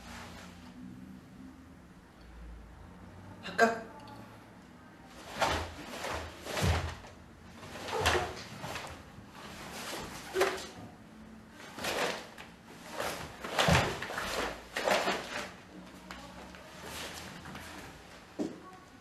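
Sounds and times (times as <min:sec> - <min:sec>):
bare feet sliding on wooden floor: 0:05.2 - 0:10.8
fabric snapping swishes: 0:05.2 - 0:10.8, 0:11.6 - 0:15.5.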